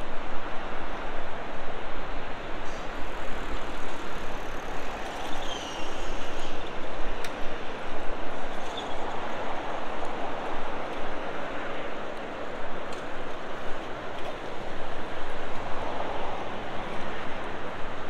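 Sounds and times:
passing car traffic: 0:01.4 - 0:18.0
faint high squeal: 0:05.2 - 0:06.6.

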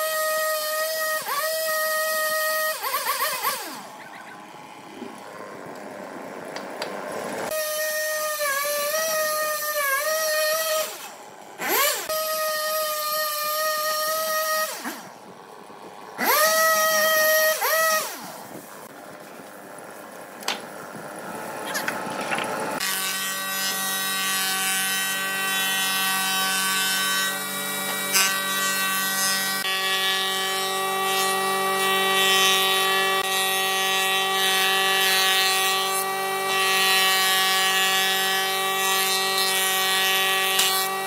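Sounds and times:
chainsaw cutting log: 0:00.0 - 0:41.0
chainsaw idling: 0:02.8 - 0:07.5.

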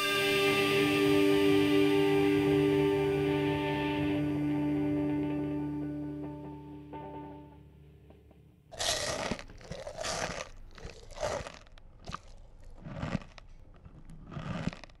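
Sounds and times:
crunching crinkling bursts: 0:08.7 - 0:15.0.

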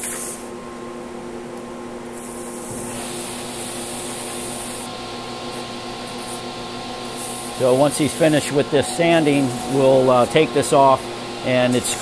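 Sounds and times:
lathe motor hum: 0:03.4 - 0:12.0
sandpaper rubbing on spinning wood: 0:07.1 - 0:12.0.

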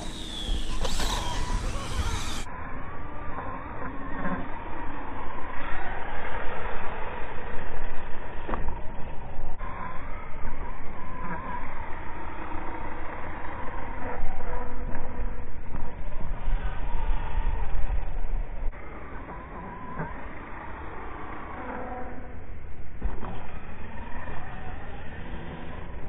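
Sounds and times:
dirt bike engine revving: 0:00.0 - 0:02.5.

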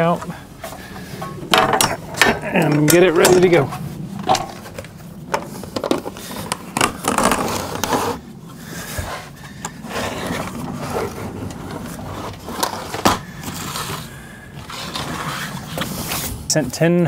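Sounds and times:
low hum: 0:00.0 - 0:16.5
scraping rustling and knocking: 0:00.2 - 0:08.2.

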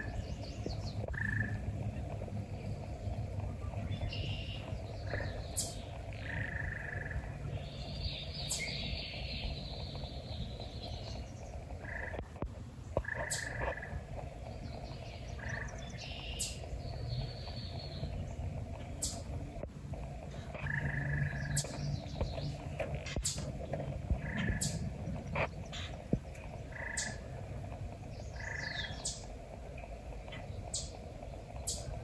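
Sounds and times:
birds singing and calling: 0:00.0 - 0:32.0
low outdoor background: 0:00.0 - 0:32.0.

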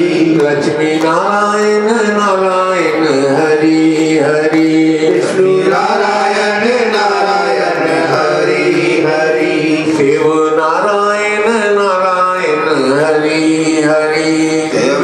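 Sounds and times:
devotional chant-like singing: 0:00.0 - 0:15.0
steady sustained tones: 0:01.6 - 0:11.6.

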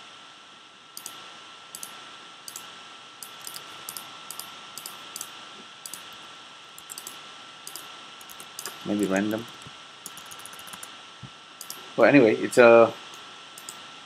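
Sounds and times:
background hiss: 0:00.0 - 0:14.0
faint high steady tone: 0:01.8 - 0:10.9
mouse and keyboard clicks: 0:02.5 - 0:05.3, 0:05.9 - 0:06.2, 0:06.8 - 0:10.9, 0:11.6 - 0:11.8, 0:13.6 - 0:13.8.

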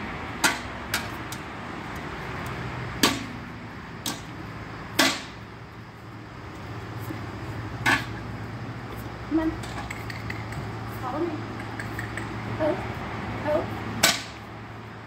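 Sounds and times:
sharp short clicks: 0:11.5 - 0:12.4.

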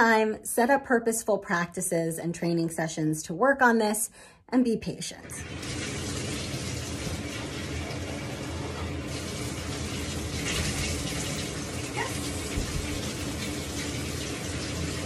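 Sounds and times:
faucet running into a bathtub: 0:05.3 - 0:15.0
water splashing: 0:05.4 - 0:15.0.

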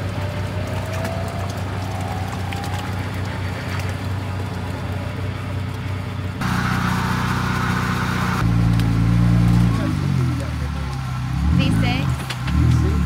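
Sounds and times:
truck engine idling: 0:00.0 - 0:13.0
hiss: 0:06.4 - 0:08.4.

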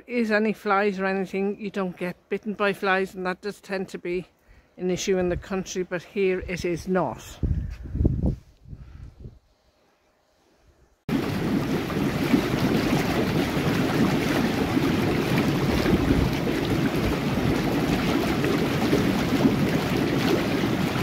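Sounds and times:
hot tub jets bubbling water: 0:11.1 - 0:21.0.

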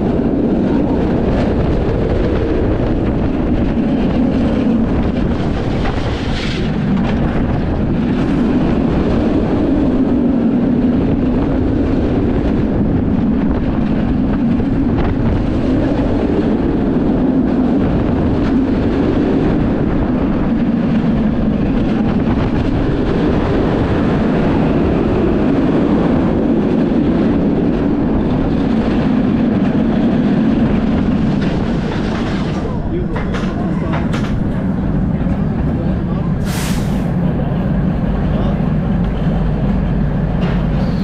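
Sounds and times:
roller coaster wheels rumbling: 0:00.0 - 0:41.0
wind on microphone: 0:00.0 - 0:41.0.

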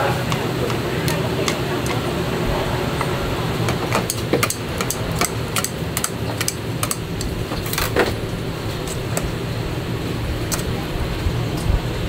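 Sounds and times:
utensils clicking on plates: 0:00.0 - 0:08.2
kitchen hum: 0:00.0 - 0:12.0.

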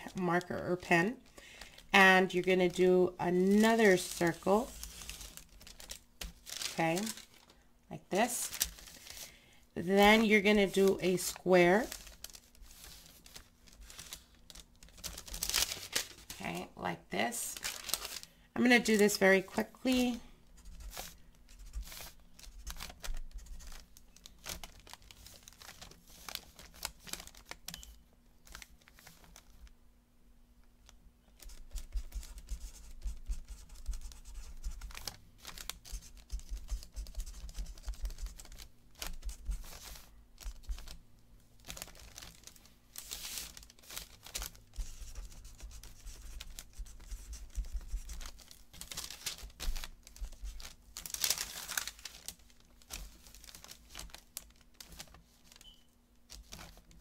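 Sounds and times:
faint steady hum: 0:00.0 - 0:57.0
paper rustling: 0:03.4 - 0:07.5, 0:08.2 - 0:09.3, 0:09.9 - 0:16.5, 0:17.6 - 0:19.2, 0:19.9 - 0:27.6, 0:33.7 - 0:41.0, 0:41.6 - 0:55.7
marker scratching on paper: 0:44.8 - 0:48.2.

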